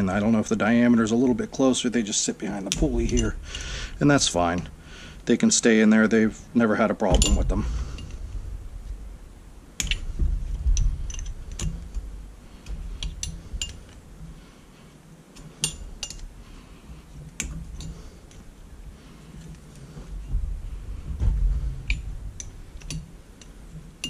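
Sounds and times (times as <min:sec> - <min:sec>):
low handling noise: 0:00.0 - 0:24.0
wrench clinking on metal: 0:02.7 - 0:03.7, 0:07.1 - 0:08.2, 0:09.8 - 0:10.2, 0:10.8 - 0:12.1, 0:13.0 - 0:14.0, 0:15.4 - 0:16.3, 0:17.4 - 0:18.4, 0:21.9 - 0:23.6.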